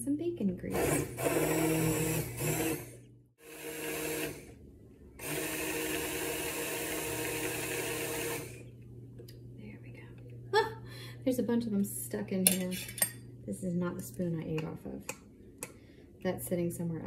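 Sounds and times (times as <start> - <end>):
immersion blender buzzing: 0.7 - 4.6, 5.2 - 8.7.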